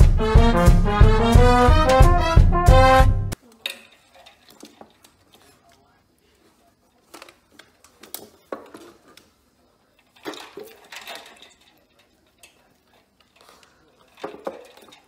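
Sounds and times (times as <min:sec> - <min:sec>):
ice cubes clattering in metal bowl: 0:09.9 - 0:15.0.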